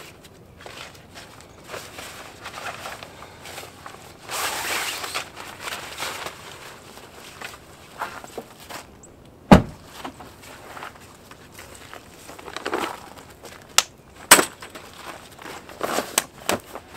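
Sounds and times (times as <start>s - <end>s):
loud rasping rustle: 0.0s - 8.9s
rustling: 0.0s - 16.9s.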